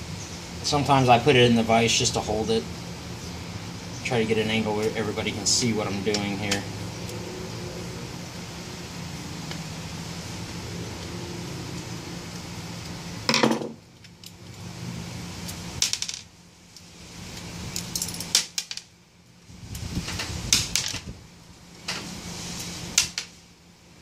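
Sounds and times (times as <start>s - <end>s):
low steady hum: 0.0s - 24.0s
metal parts clinking: 17.8s - 18.9s.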